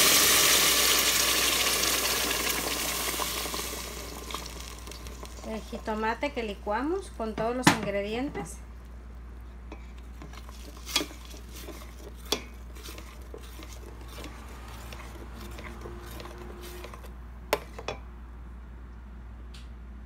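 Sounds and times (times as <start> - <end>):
spoon scraping in pot: 9.4 - 18.0.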